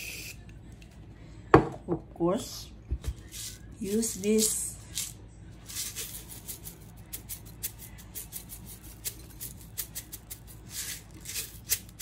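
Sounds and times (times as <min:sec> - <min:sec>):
sprinkles rattling in container: 0:03.2 - 0:12.0.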